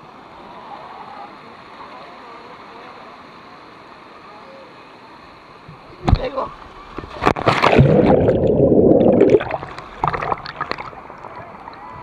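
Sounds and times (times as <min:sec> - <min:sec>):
flowing river water: 0:00.0 - 0:12.0
swimmers chattering and calling: 0:00.1 - 0:06.9.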